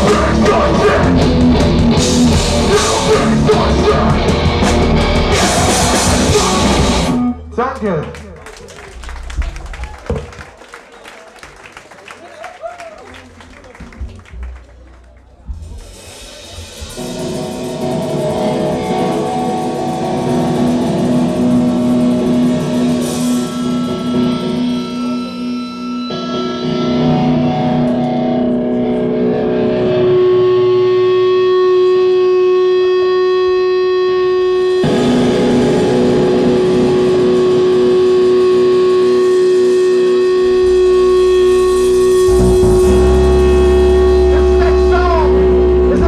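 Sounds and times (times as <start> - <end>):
distorted electric guitar chords: 0.0 - 7.6, 15.5 - 46.0.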